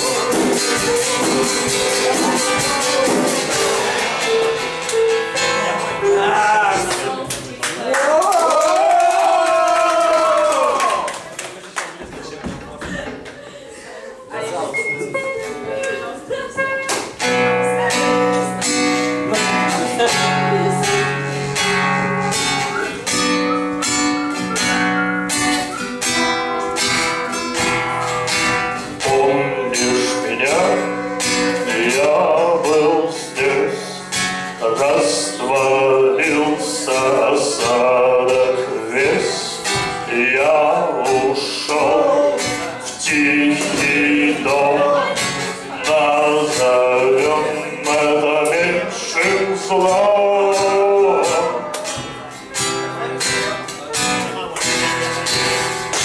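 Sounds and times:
person singing: 0:00.0 - 0:07.3, 0:15.1 - 0:23.6, 0:25.7 - 0:52.3
acoustic guitar strumming: 0:00.0 - 0:07.6, 0:14.7 - 0:56.0.

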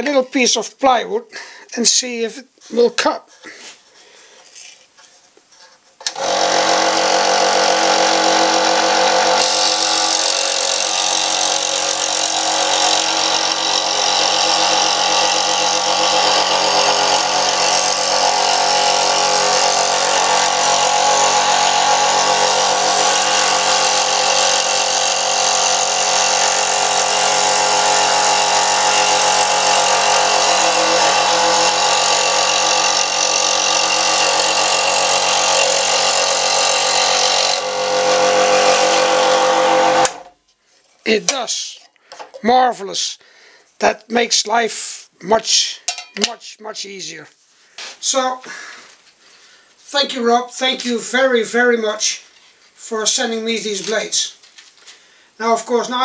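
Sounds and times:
saw blade cutting plywood: 0:06.0 - 0:40.3
scroll saw humming: 0:06.0 - 0:40.3.

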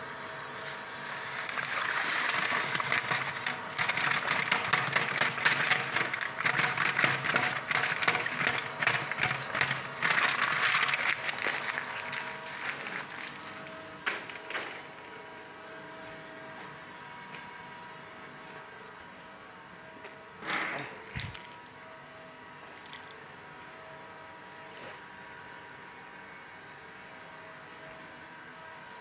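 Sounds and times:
electric stirrer motor: 0:00.8 - 0:13.7, 0:20.8 - 0:21.6
sugar pouring into syrup: 0:22.8 - 0:23.2.

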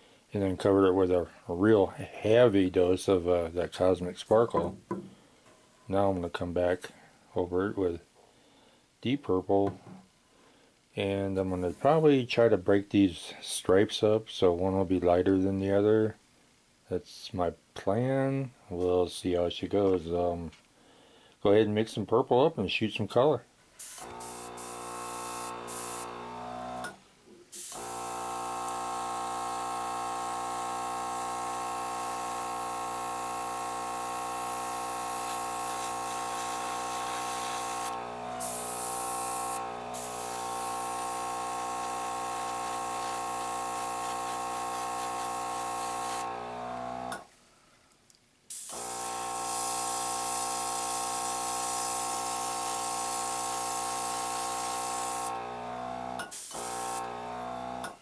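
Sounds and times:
airbrush hissing: 0:23.8 - 0:26.3, 0:27.5 - 0:46.5, 0:48.5 - 0:55.4.

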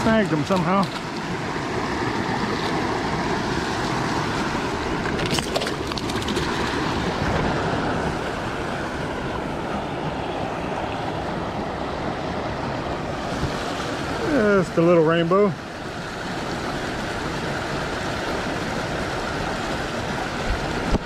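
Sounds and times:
sharp clicks and splashes: 0:00.0 - 0:07.5, 0:20.5 - 0:21.0
creek water rushing over rocks: 0:00.0 - 0:21.0.

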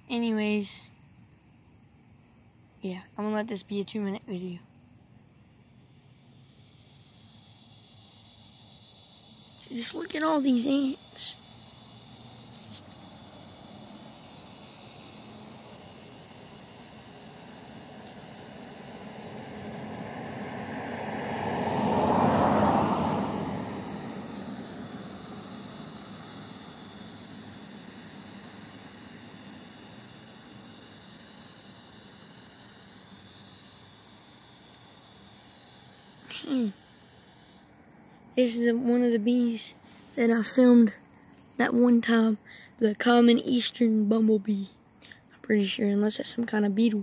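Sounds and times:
insects chirping: 0:00.0 - 0:47.0
vehicle passing by: 0:11.5 - 0:38.2.

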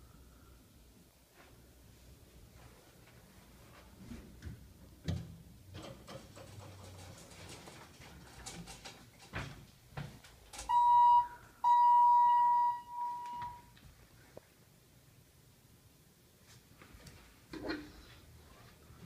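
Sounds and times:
elevator buzzer beeping: 0:10.7 - 0:13.7.

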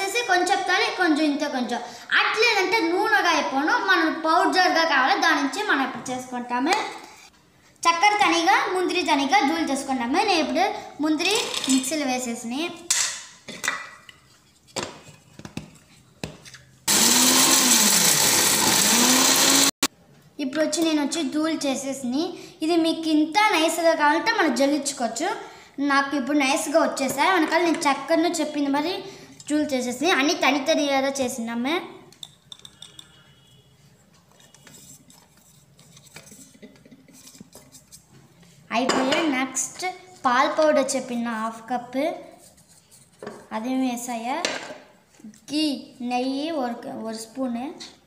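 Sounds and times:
mixer grinder motor humming: 0:16.9 - 0:19.9.

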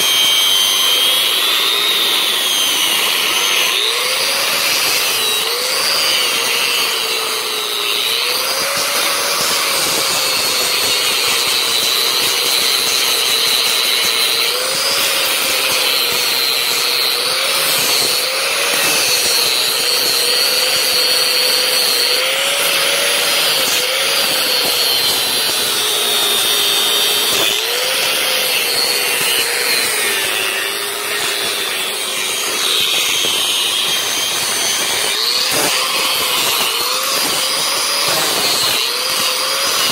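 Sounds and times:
angle grinder grinding metal: 0:00.0 - 0:39.9.

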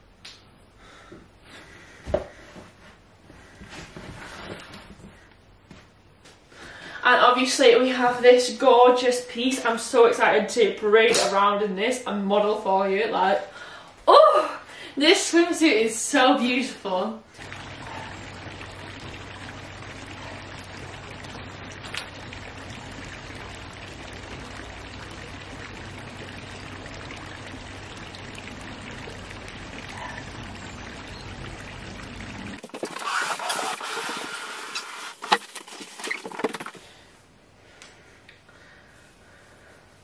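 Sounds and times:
water trickling over stones: 0:17.3 - 0:37.0
low hum: 0:17.4 - 0:35.1.

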